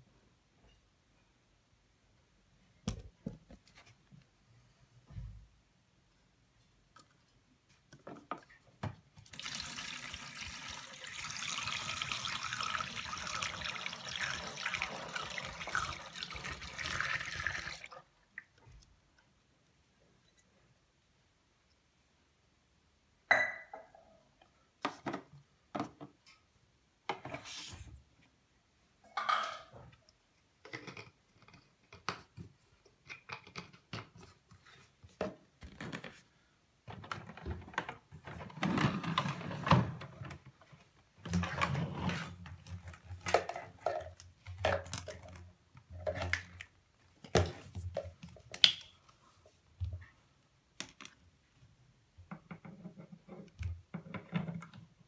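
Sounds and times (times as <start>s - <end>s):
plastic parts clicking and knocking: 30.6s - 34.4s, 36.8s - 41.8s, 42.4s - 49.0s, 52.2s - 55.0s.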